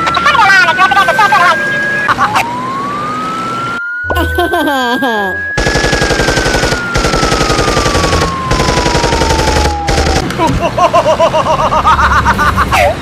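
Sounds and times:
cartoon machine-gun fire: 0:05.6 - 0:10.4.

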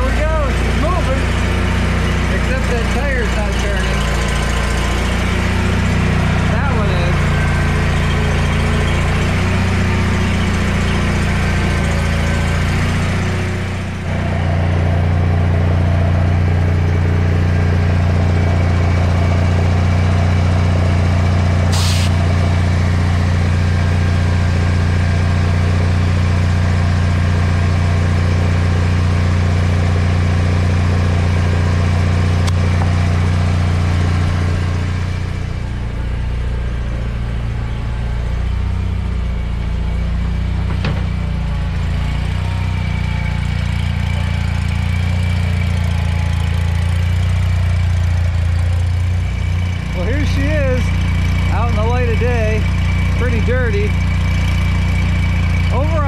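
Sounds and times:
garden tractor engine running: 0:00.0 - 0:56.0
short sharp sound: 0:21.7 - 0:22.3.

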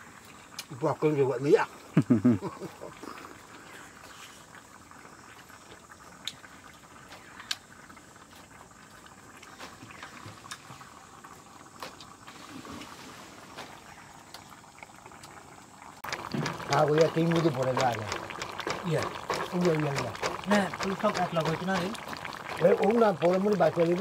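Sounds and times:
pestle crushing in mortar: 0:16.1 - 0:22.6.

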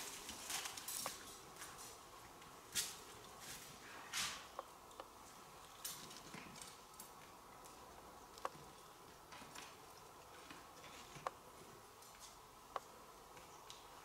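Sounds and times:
net clicks and rustles: 0:00.0 - 0:02.0.

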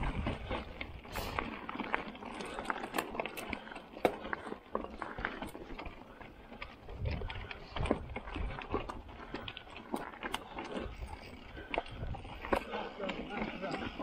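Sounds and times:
wind buffeting microphone: 0:00.0 - 0:01.1, 0:06.8 - 0:09.7, 0:10.7 - 0:12.6
bike clicks and rattles: 0:00.0 - 0:14.0.

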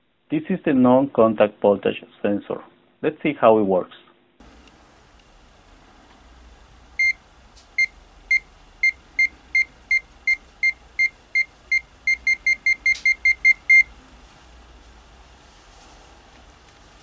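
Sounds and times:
multimeter short high beeps: 0:07.8 - 0:13.9.

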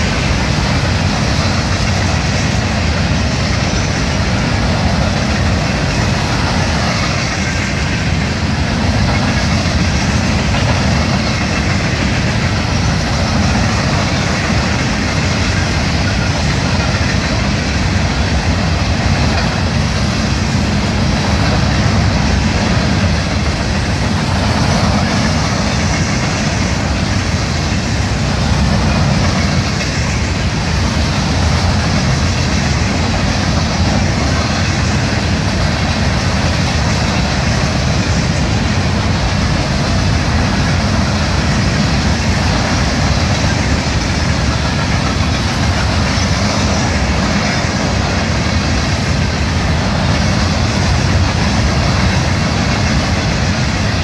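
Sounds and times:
freight train cars rolling: 0:00.0 - 0:54.0.

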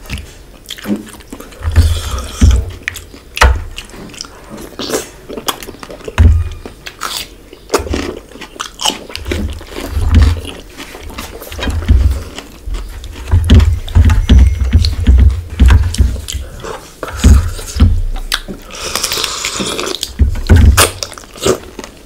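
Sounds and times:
wet chewing and lip smacking: 0:00.2 - 0:15.0, 0:16.2 - 0:20.2
deep low thuds: 0:11.7 - 0:16.4, 0:17.2 - 0:18.3, 0:20.2 - 0:21.0.

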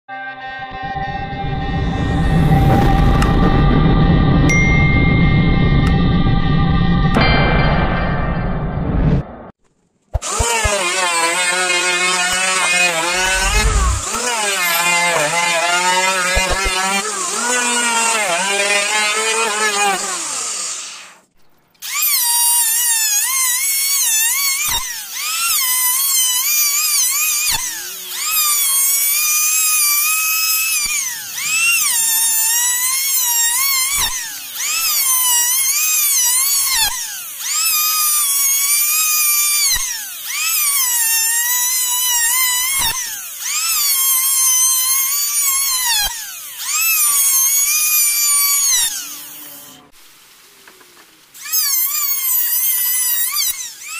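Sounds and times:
sharp knock: 0:07.1 - 0:09.6
electric planer whining: 0:10.2 - 0:21.2, 0:21.8 - 0:49.9, 0:51.4 - 0:53.9.

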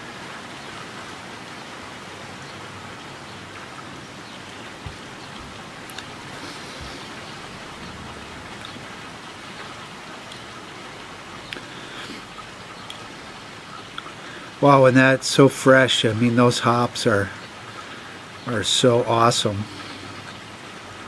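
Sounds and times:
steady rushing noise: 0:01.9 - 0:12.4.

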